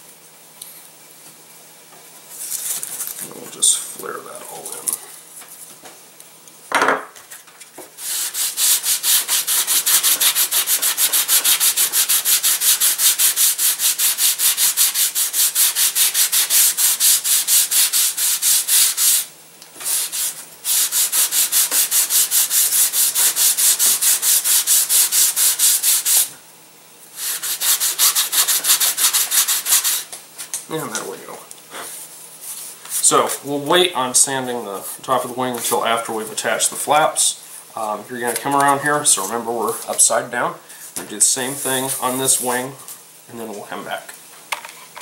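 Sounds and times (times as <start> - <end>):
sandpaper rubbing back and forth: 8.0 - 26.3, 27.2 - 30.1, 41.3 - 42.6.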